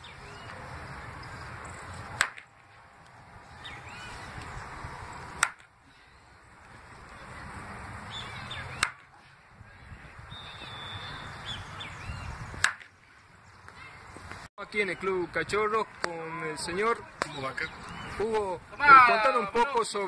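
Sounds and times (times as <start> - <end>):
bat hitting ball cracks: 2.2 - 2.5, 5.4 - 5.7, 8.8 - 9.1.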